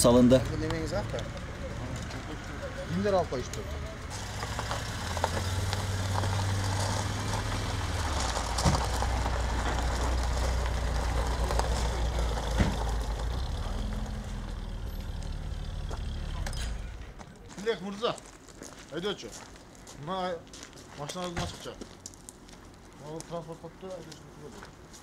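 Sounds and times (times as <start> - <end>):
car engine running at low revs: 0.1 - 17.2.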